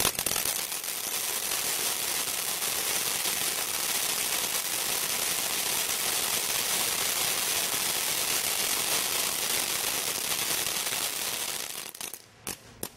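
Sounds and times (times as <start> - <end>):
firework fountain hissing and crackling: 0.0 - 12.9.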